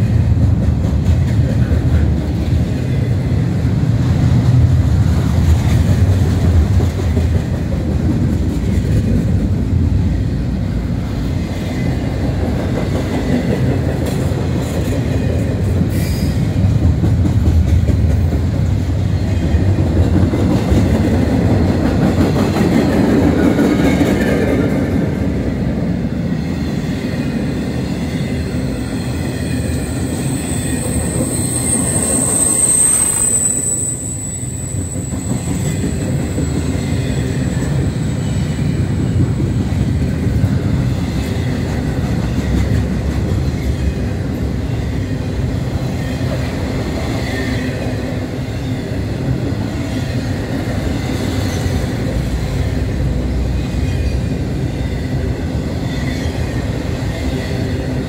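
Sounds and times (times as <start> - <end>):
train wheels rumbling on rails: 0.0 - 58.0
high-pitched wheel squeal: 28.8 - 38.7.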